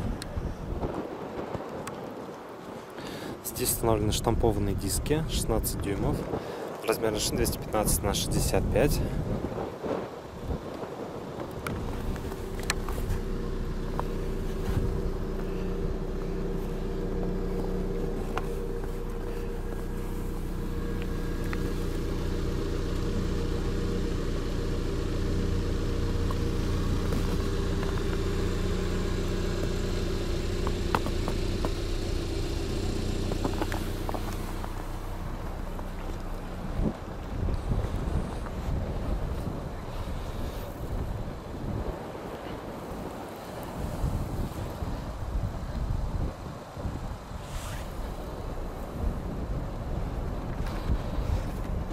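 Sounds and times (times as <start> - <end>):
car engine idling: 11.2 - 45.1, 48.0 - 51.9.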